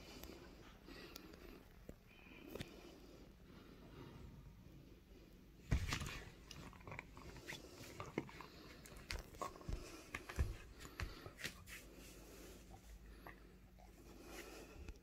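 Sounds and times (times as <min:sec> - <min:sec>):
dog chewing rubber toy: 0:06.0 - 0:11.3.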